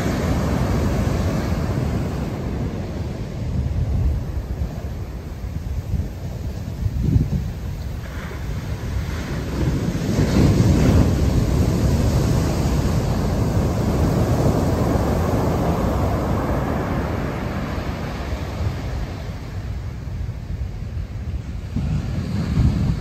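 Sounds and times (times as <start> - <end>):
surf breaking on a beach: 0.0 - 23.0.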